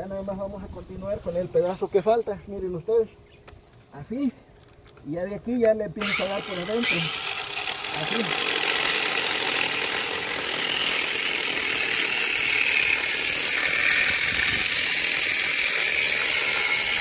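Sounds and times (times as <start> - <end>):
angle grinder cutting pipe: 6.0 - 17.0.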